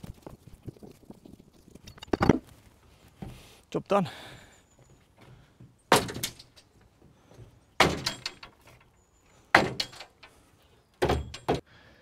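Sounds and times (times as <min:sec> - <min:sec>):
wooden doors shutting: 0:11.0 - 0:11.6.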